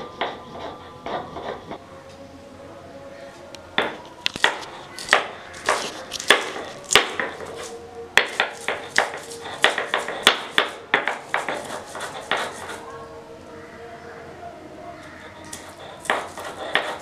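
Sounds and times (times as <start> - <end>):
roller scraping on board: 4.4 - 12.9, 15.5 - 17.0.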